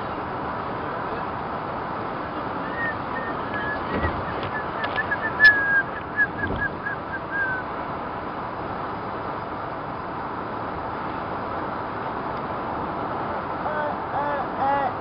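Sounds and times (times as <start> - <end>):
car road noise from inside: 2.1 - 8.4
high squeaky chirps: 2.7 - 7.6.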